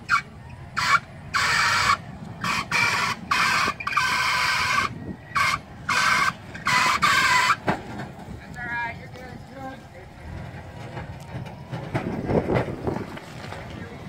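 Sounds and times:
harsh high squeals: 0:00.0 - 0:07.7
low engine rumble: 0:00.0 - 0:14.0.

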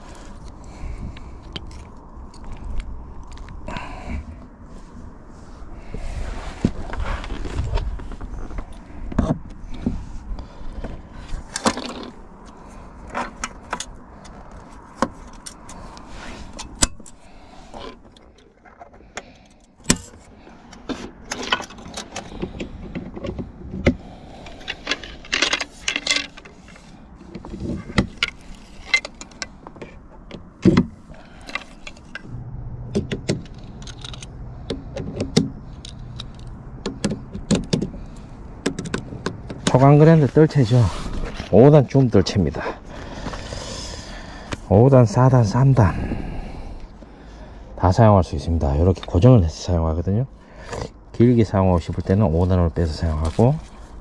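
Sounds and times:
fishing gear clicks and clinks: 0:24.0 - 0:27.0, 0:33.0 - 0:37.0.

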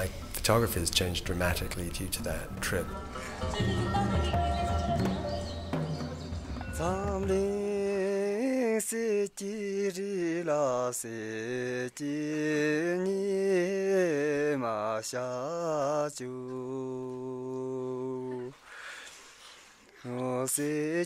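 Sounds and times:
person singing unaccompanied: 0:01.4 - 0:18.6, 0:20.0 - 0:21.0.

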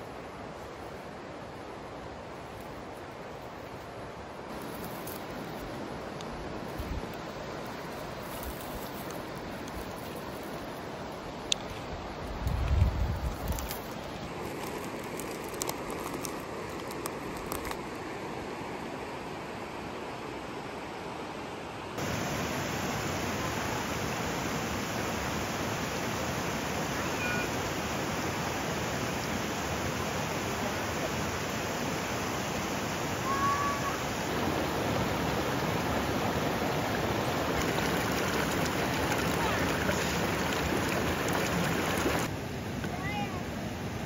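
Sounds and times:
creek rushing over rocks: 0:22.0 - 0:43.4.

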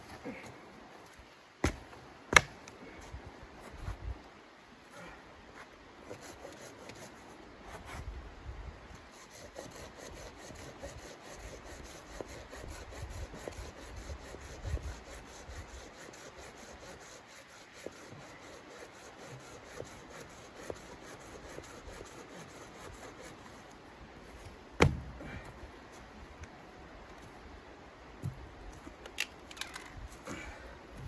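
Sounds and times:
hand saw rasping through log: 0:09.1 - 0:23.6.

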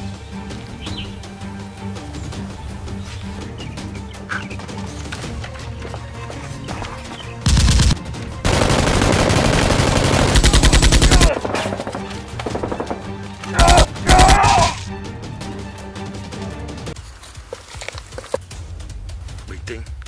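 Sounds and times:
background music: 0:00.0 - 0:20.0
rapid gunfire bursts: 0:07.4 - 0:14.4.

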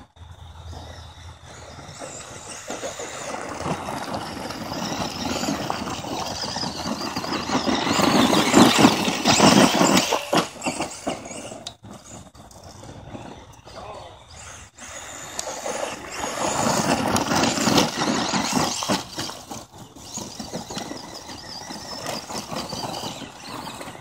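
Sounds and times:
tyres crunching on gravel: 0:00.2 - 0:24.0.

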